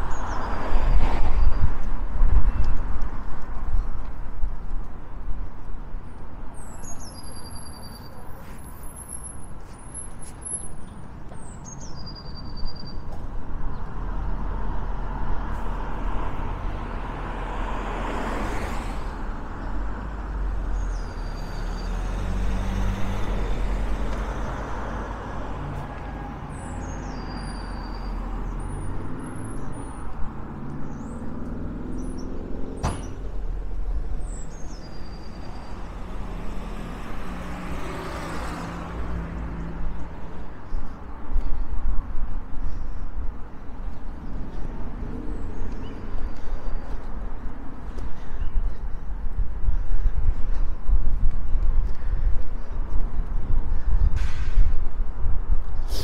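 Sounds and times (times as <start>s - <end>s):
cars passing: 0.0s - 56.0s
car engine rumble pulling away: 19.7s - 25.8s.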